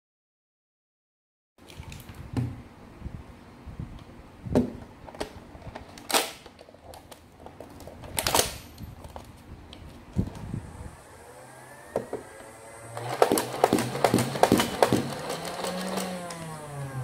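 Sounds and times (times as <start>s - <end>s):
plastic scraping rasps: 13.0s - 16.6s.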